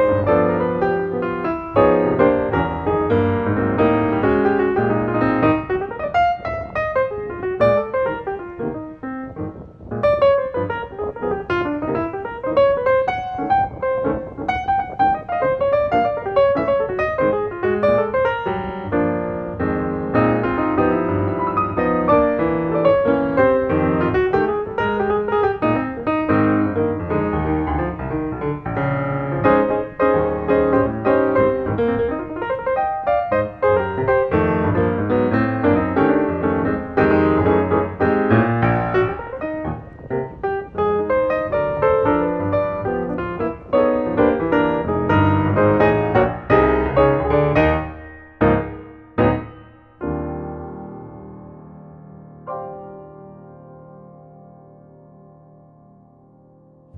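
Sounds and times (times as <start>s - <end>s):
piano music: 0.0s - 56.9s.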